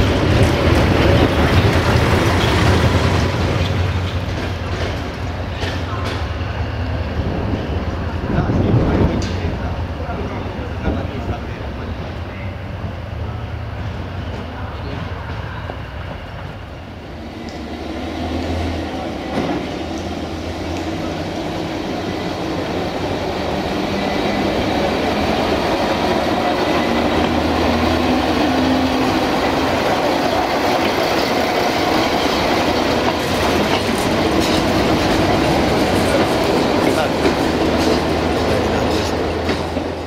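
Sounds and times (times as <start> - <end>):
wheels clattering over rail joints: 0.0 - 6.3, 26.0 - 40.0
rail vehicle engine drone: 0.0 - 40.0.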